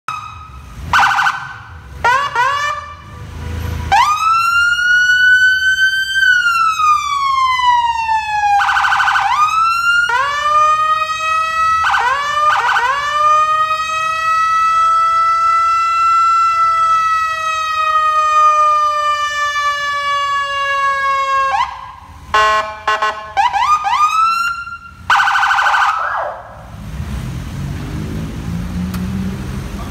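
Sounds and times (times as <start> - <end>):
police siren wailing: 0.1 - 26.7
buzzing horn blasts: 22.3 - 23.4.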